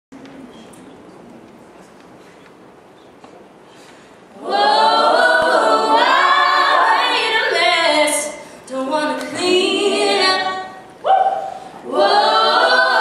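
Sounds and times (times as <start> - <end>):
women singing in harmony: 4.3 - 13.0.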